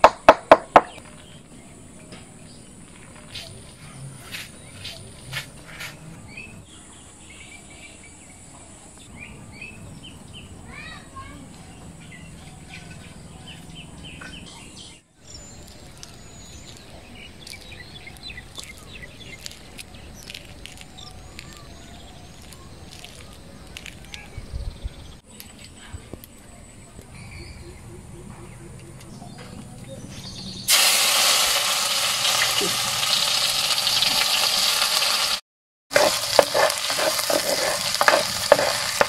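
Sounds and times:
birds chirping and calling: 11.6 - 25.2, 27.1 - 30.7.

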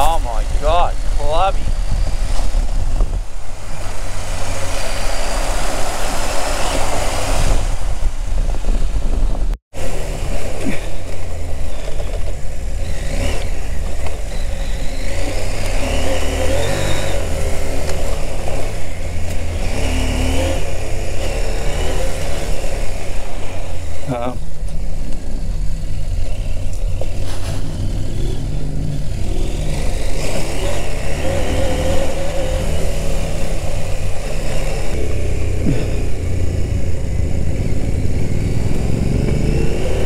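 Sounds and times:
tyre noise on dirt: 0.0 - 40.0
wind noise: 0.0 - 40.0
motorcycle engine running: 7.5 - 40.0.

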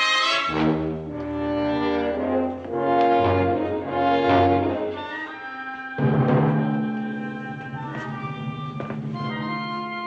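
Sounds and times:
orchestral brass chords: 0.0 - 10.0.

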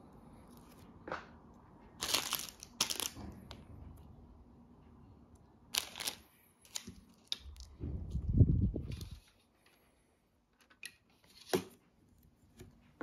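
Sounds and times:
plastic bag crinkling: 2.0 - 3.2, 5.8 - 7.7.

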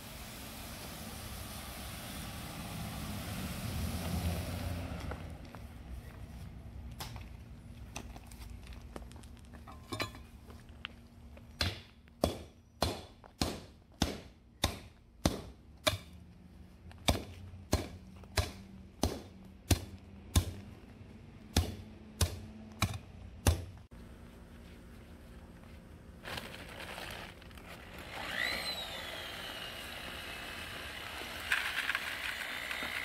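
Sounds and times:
hand tamper pounding gravel: 26.2 - 33.0.

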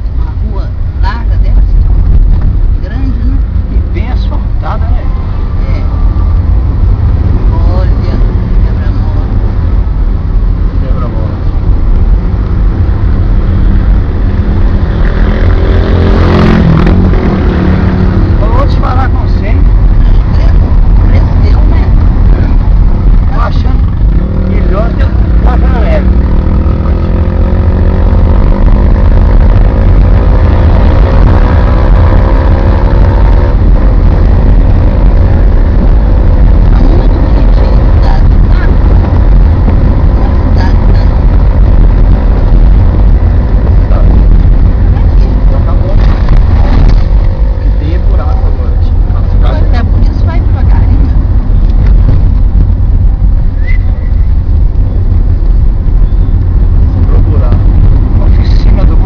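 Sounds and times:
car engine drone: 0.0 - 59.0
road noise rumble: 0.0 - 59.0
wind buffeting on microphone: 0.0 - 59.0.

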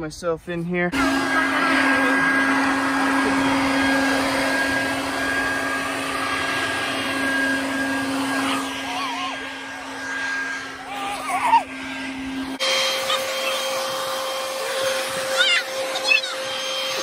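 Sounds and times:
electric leaf blower running: 0.9 - 17.0.

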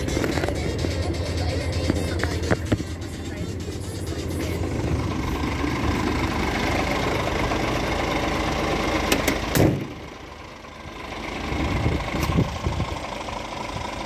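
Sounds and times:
truck diesel engine idling: 0.0 - 14.0.

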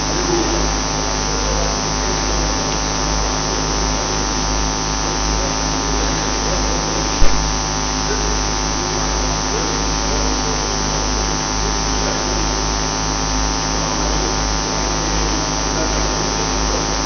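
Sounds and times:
electrical mains hum: 0.0 - 17.0
sharp knock: 7.2 - 7.5.

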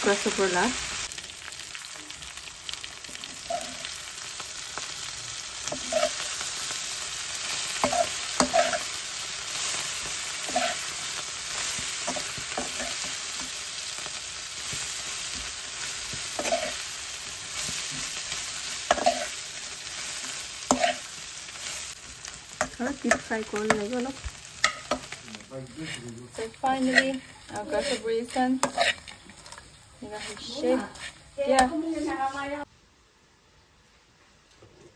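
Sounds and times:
food sizzling in oil: 0.0 - 32.7
metal spatula scraping a pan: 3.0 - 4.0, 5.6 - 14.0, 14.6 - 22.0, 24.6 - 32.6.

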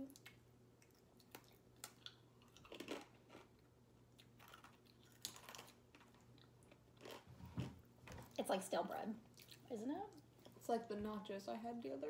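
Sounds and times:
cookie chewing crunches: 0.0 - 7.3
low steady hum: 0.0 - 12.0.

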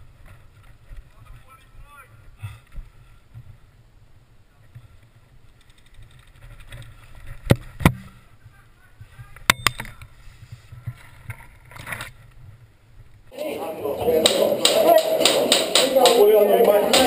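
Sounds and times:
airsoft rifle shots: 13.4 - 17.0.

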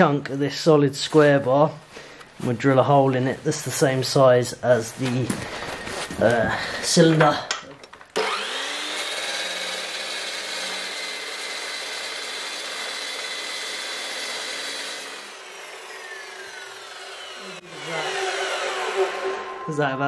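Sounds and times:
chop saw cutting steel: 8.2 - 20.0.

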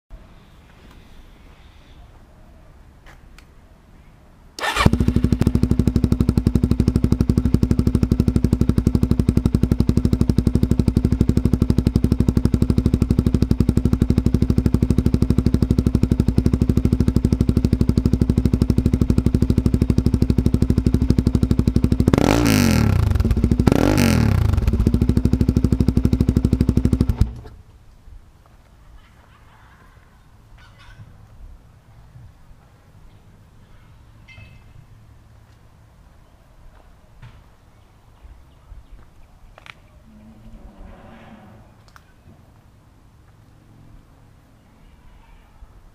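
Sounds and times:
engine revving: 4.6 - 27.5
motorcycle engine starting and idling: 4.6 - 27.7.

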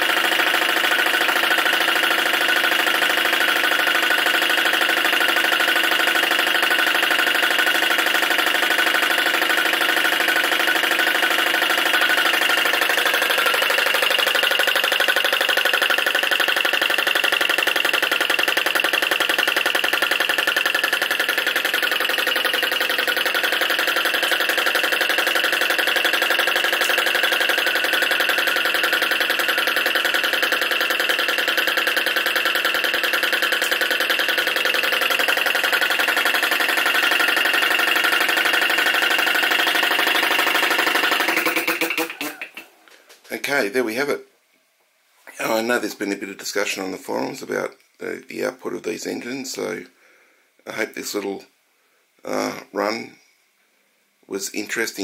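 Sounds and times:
small engine running fast: 0.0 - 42.7.

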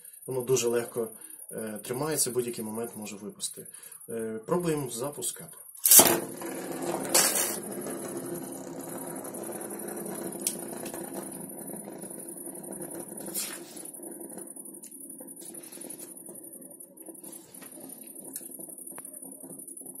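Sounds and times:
spinning top whirring on wood: 5.8 - 20.0.

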